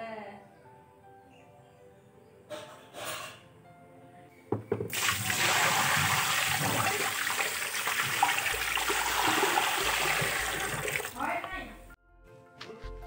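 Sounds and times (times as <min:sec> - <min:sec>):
water gushing into sink: 0:04.9 - 0:11.2.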